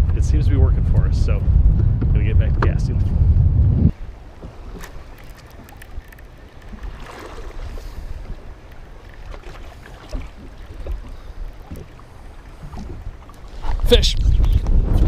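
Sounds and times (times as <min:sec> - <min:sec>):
wind rumble on microphone: 0:00.0 - 0:15.0
waves lapping against boat: 0:03.9 - 0:14.9.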